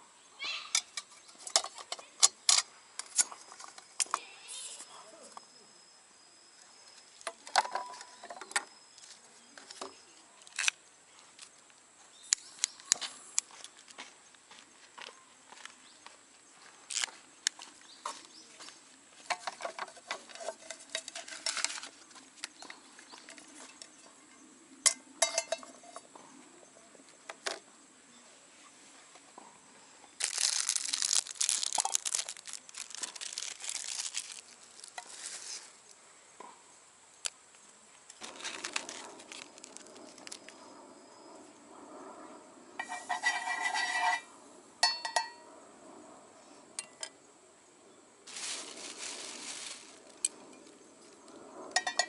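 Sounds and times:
metal cookware clinking: 24.9 - 26.0, 42.8 - 45.4, 51.8 - 52.0
loud crinkling and tearing: 30.2 - 35.7, 38.2 - 40.6, 48.3 - 50.3.

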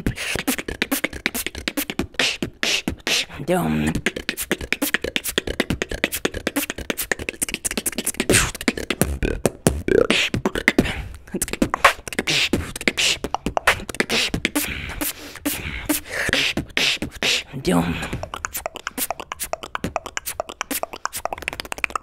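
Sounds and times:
man beatboxing: 0.0 - 22.0
sliding pitched vocal sounds: 0.0 - 22.0.

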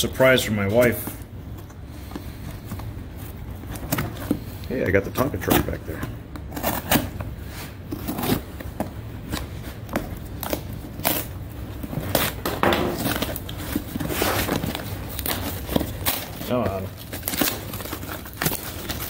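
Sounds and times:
cardboard box scraping and crinkling: 13.0 - 19.0.

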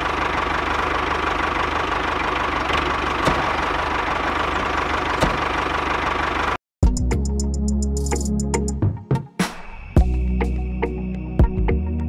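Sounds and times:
small engine chugging: 0.0 - 6.6.

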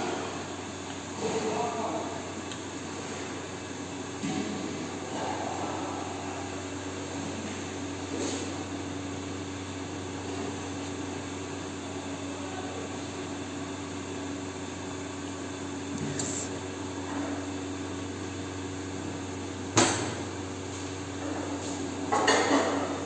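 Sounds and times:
gas burner flame rushing: 15.8 - 22.8.

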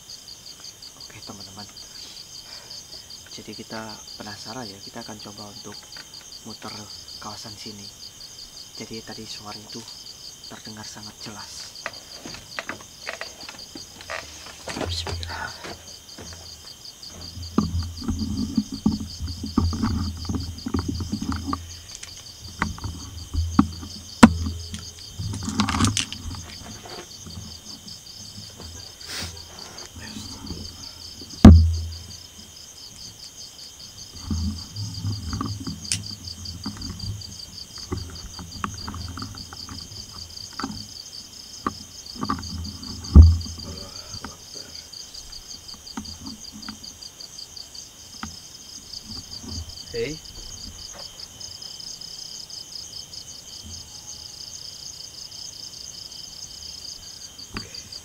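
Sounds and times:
crickets chirping: 0.0 - 58.0
handling noise: 11.6 - 32.4, 34.1 - 41.0, 41.6 - 44.4
low footsteps: 11.6 - 32.5, 41.7 - 44.0
sharp thumps: 11.8 - 32.4, 34.2 - 40.9, 41.6 - 44.4.

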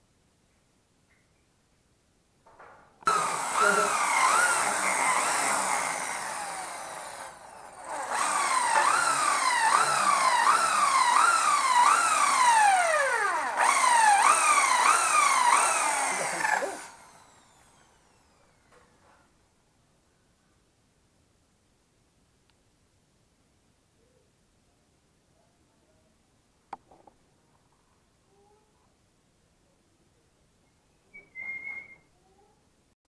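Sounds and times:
hammer drill boring into wall: 3.0 - 18.9.

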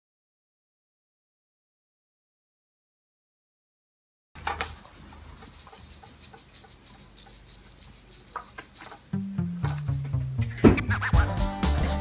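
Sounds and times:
cat claws scratching cardboard: 4.4 - 9.2.

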